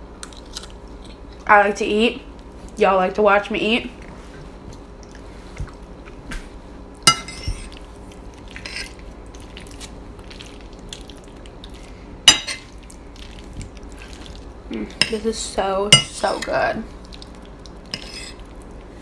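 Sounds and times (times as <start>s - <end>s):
metal fork clinking on a plate: 7.1s - 7.6s.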